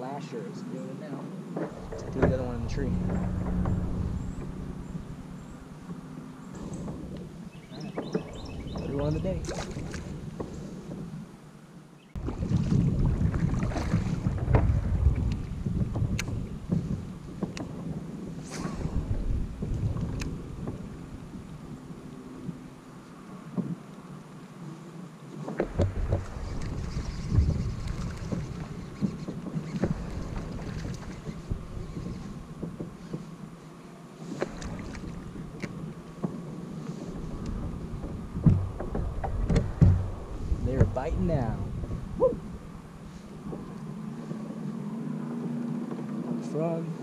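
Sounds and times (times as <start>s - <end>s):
wind rumbling on microphone: 0.0s - 47.0s
light knocks and clicks of gear: 15.2s - 17.7s.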